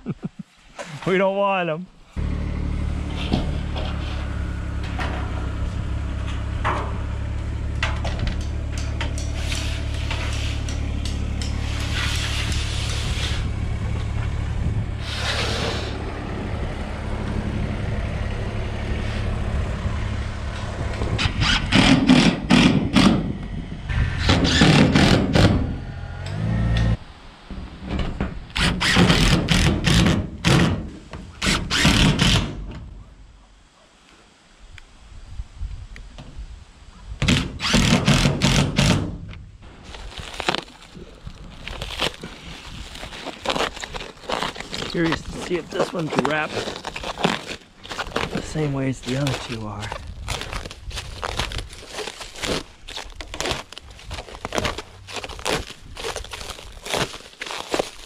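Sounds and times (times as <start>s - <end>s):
engine running steadily: 2.2s - 27.0s
impact driver driving screws: 21.2s - 23.3s, 24.2s - 25.7s, 28.6s - 30.8s, 31.4s - 32.6s, 37.2s - 39.1s.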